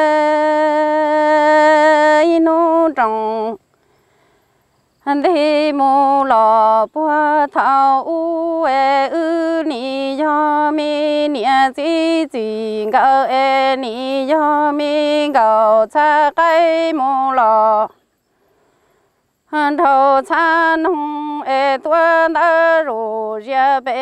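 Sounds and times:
woman singing unaccompanied: 0.0s - 3.9s, 4.8s - 18.2s, 19.4s - 24.0s
quick breaths: 3.6s - 5.0s, 17.9s - 19.5s.

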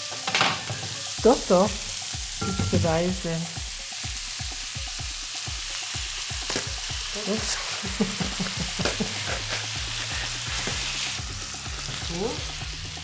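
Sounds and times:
vegetables sizzling in a frying pan: 0.0s - 13.0s
utensil tapping pan: 2.4s - 3.4s.

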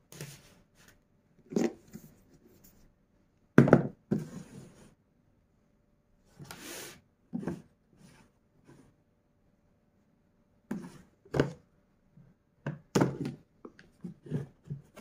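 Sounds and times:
plastic knocks on marble table: 3.6s - 4.0s.

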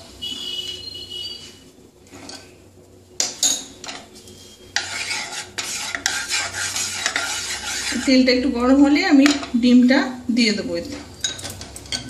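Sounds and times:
wooden spatula scraping pan: 4.2s - 8.5s.

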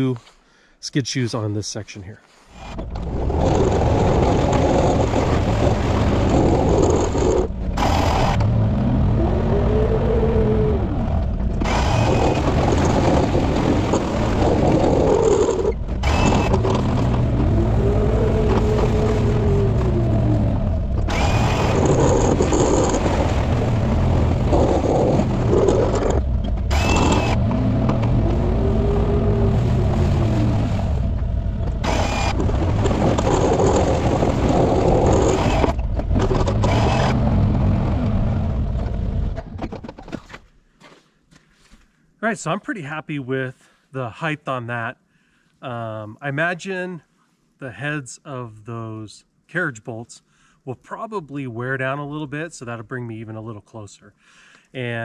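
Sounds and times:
engine running under load: 2.6s - 39.6s
snowplow blade scraping and rattling: 2.6s - 40.3s.

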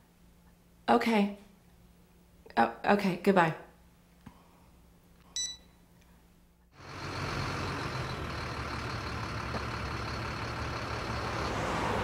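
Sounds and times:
truck engine running: 6.7s - 12.0s.

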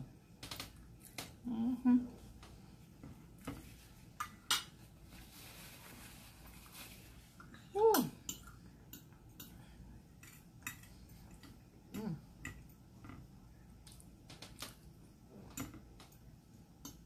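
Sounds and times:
person humming: 1.4s - 2.2s.

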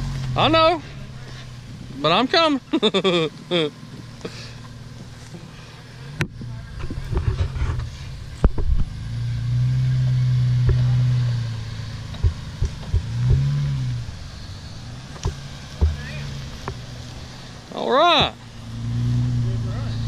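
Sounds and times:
engine revving under load: 0.0s - 20.0s
sharp knocks: 12.1s - 13.8s, 15.2s - 16.9s.

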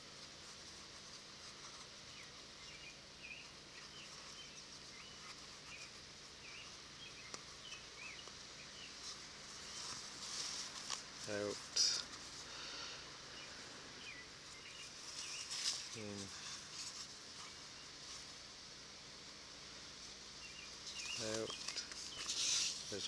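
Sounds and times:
leather lace rustling: 0.2s - 12.5s, 14.4s - 18.3s
faint bird chirps: 1.6s - 10.0s, 11.3s - 18.3s, 20.4s - 23.0s.

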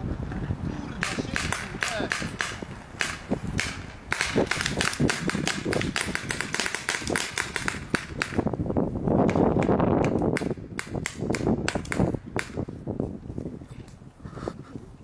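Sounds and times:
paintball guns firing: 1.0s - 8.4s, 9.2s - 12.6s.

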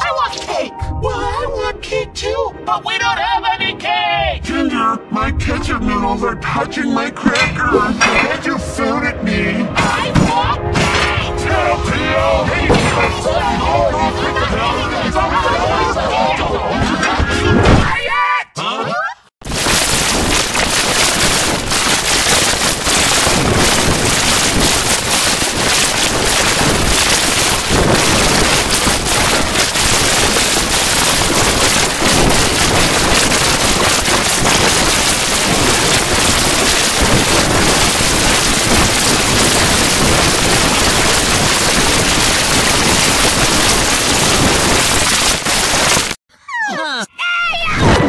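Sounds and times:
harsh static noise: 19.4s - 46.2s.

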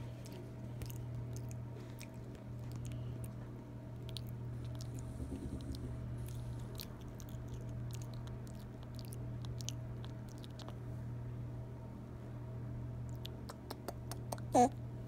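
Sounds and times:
monkey chewing: 0.0s - 10.8s
low hum: 0.0s - 15.0s.

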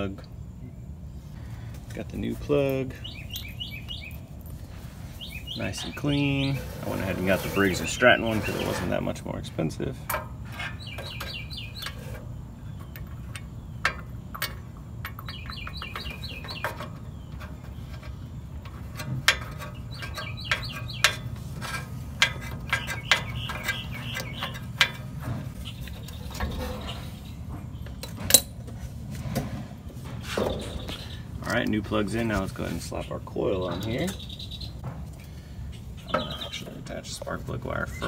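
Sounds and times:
bird chirping: 0.0s - 28.4s, 30.0s - 38.0s
steady low hum: 0.0s - 38.0s
hand tool clicks and knocks: 12.8s - 25.2s.

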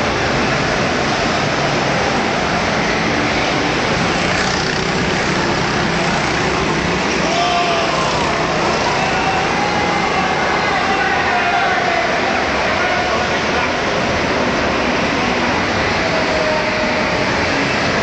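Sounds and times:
go-kart engines running: 0.0s - 18.0s
steady rush of noise: 0.0s - 18.0s.

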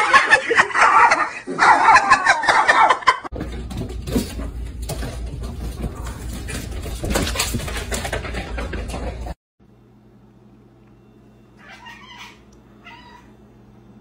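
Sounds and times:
person cackling laughter: 0.0s - 3.3s.

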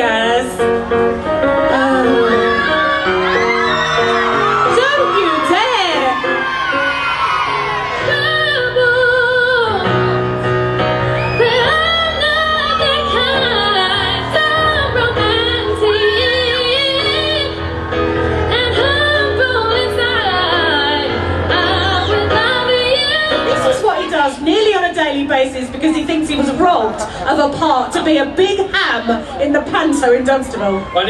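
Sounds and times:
keyboard accompaniment: 0.0s - 27.2s
woman singing slow melody: 1.6s - 2.8s, 11.2s - 17.6s.

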